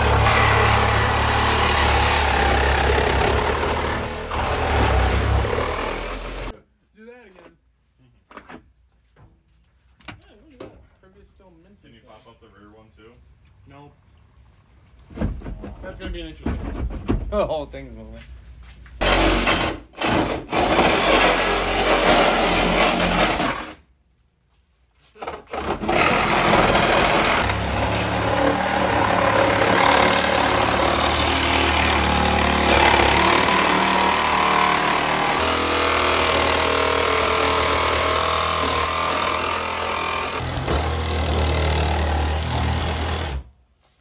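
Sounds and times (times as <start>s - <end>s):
power saw cutting metal: 0.0s - 6.5s, 19.0s - 23.7s, 25.7s - 43.5s.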